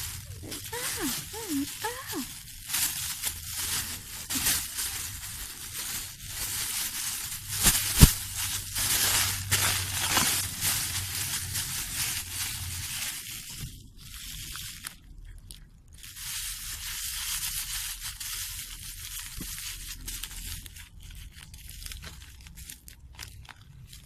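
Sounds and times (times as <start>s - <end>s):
plastic bags crinkling: 0.0s - 24.0s.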